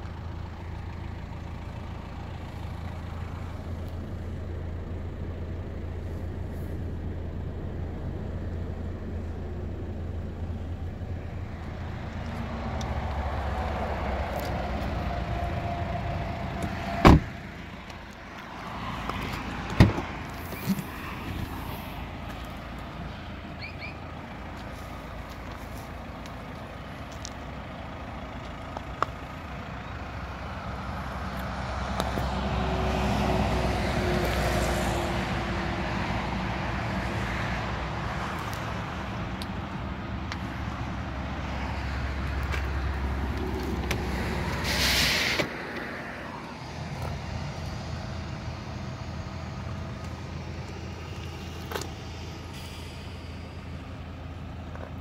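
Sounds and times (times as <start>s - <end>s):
vehicle engine rumbling: 0.0s - 55.0s
air brake hiss: 44.6s - 45.6s, 52.4s - 54.0s.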